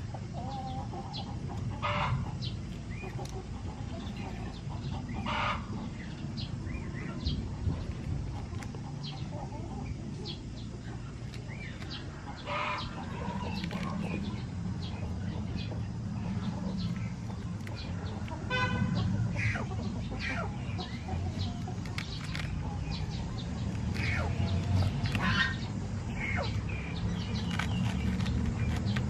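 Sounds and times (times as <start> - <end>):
harsh chicken calls: 0.0 - 5.9, 12.0 - 15.0, 15.7 - 26.6
chickens clucking: 0.0 - 29.0.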